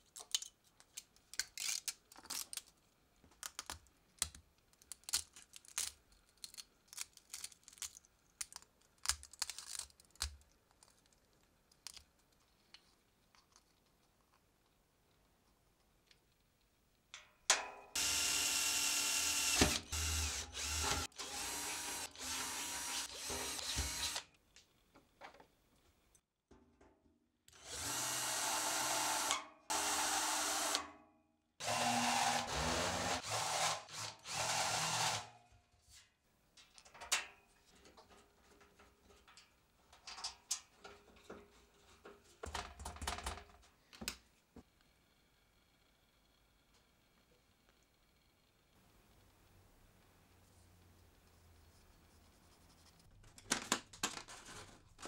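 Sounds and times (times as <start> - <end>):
power drill drilling into metal: 18.0 - 24.2, 27.6 - 30.8, 31.6 - 35.3.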